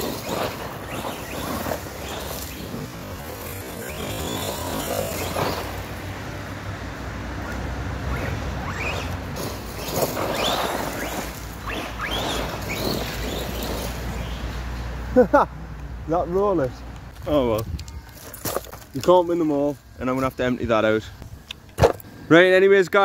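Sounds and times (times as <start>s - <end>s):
electric motor whining: 0.0s - 6.4s
tyres spraying dirt: 0.0s - 23.0s.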